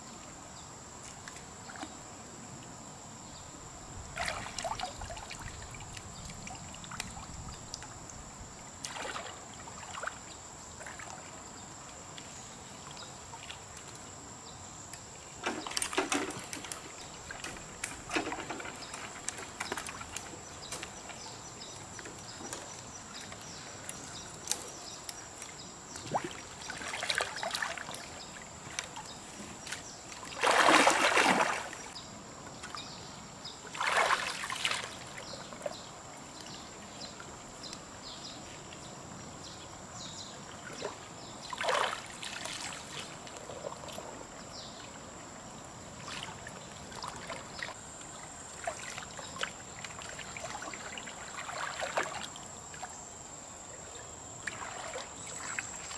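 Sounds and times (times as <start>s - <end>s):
water splashing and sloshing: 4.0s - 14.1s, 15.2s - 32.0s, 33.6s - 37.6s, 40.4s - 45.0s, 45.7s - 53.1s, 54.4s - 55.9s.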